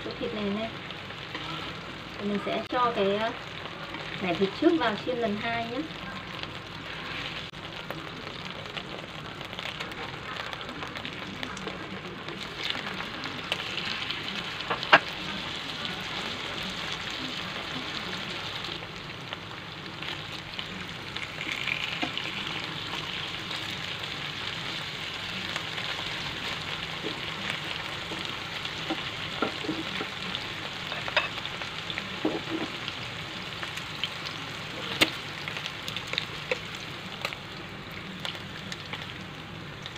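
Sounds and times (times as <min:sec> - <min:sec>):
meat sizzling in oil: 0:00.0 - 0:39.9.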